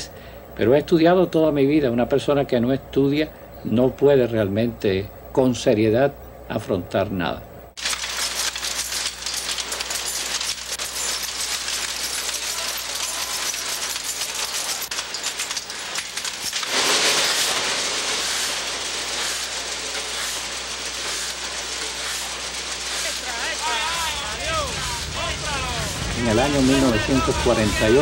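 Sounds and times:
printing machinery clatter: 0:07.8 - 0:28.0.

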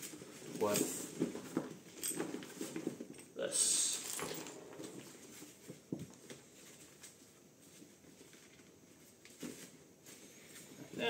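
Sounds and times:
buckles clicking and knocking: 0:00.0 - 0:03.3, 0:04.0 - 0:06.4
fabric bag and straps rustling: 0:00.0 - 0:10.9.

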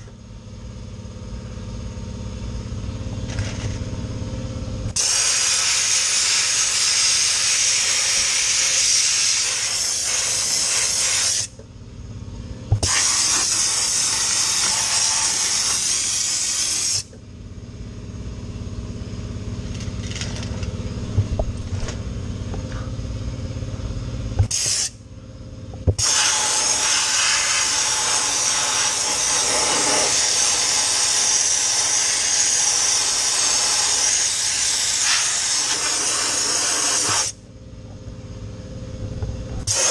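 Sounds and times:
steady low hum: 0:00.0 - 0:31.1, 0:31.7 - 0:39.9
dry ice blaster hissing: 0:05.0 - 0:11.6, 0:12.7 - 0:17.2, 0:24.4 - 0:25.0, 0:26.0 - 0:37.4, 0:39.6 - 0:39.9.

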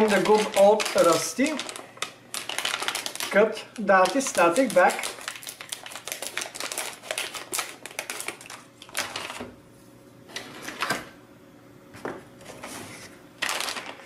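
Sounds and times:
plastic bag crinkling and crackling: 0:00.0 - 0:09.4, 0:13.4 - 0:14.0.

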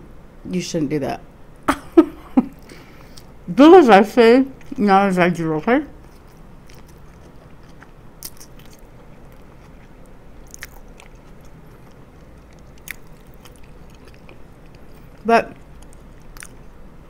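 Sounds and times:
low steady hum: 0:00.0 - 0:17.0
person chewing food: 0:06.0 - 0:16.8.

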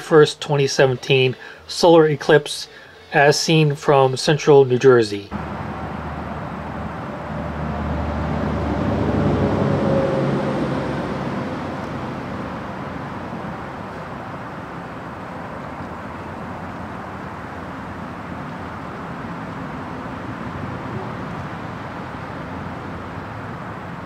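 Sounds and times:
background traffic noise: 0:00.0 - 0:24.0
vehicle passing by: 0:05.3 - 0:24.0.

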